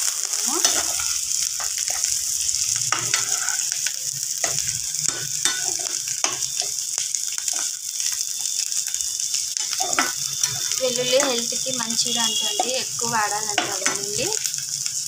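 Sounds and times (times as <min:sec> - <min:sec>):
vegetables sizzling in hot oil: 0:00.0 - 0:15.0
spatula scraping and tapping pan: 0:02.9 - 0:06.8, 0:09.6 - 0:11.3, 0:13.5 - 0:14.2.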